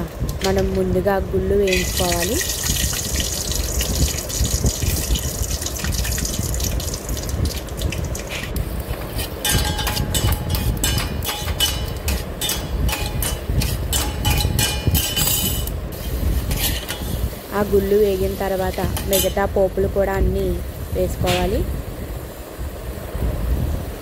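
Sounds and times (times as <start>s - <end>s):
peanuts sizzling in hot oil: 1.6s - 11.9s, 15.9s - 21.8s
steel spoon scraping pot: 9.1s - 17.3s.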